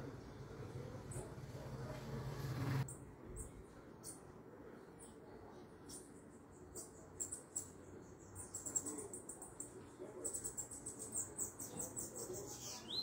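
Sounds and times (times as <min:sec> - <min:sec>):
songbird chirps and trills: 0:02.8 - 0:13.0.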